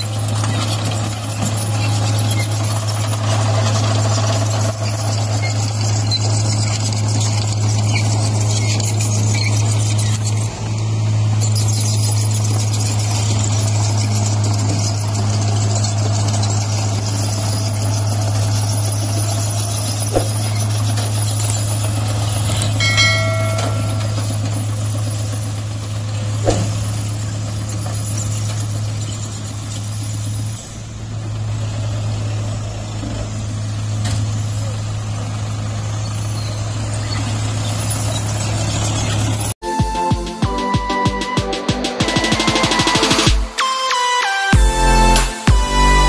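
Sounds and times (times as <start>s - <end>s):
truck engine running: 0.0s - 40.0s, 44.5s - 46.0s
brief high-pitched tone: 22.8s - 24.8s
short knocks: 26.4s - 27.0s.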